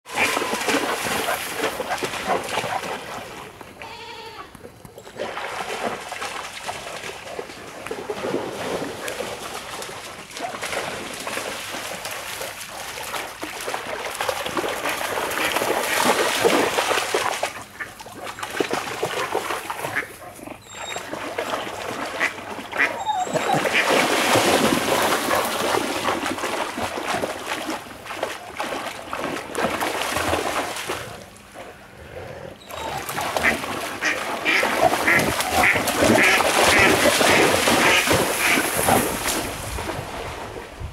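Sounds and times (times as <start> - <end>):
dog splashing through water: 0.0 - 3.6, 5.0 - 31.6, 32.7 - 40.7
ducks calling: 0.1 - 1.4, 32.6 - 38.6.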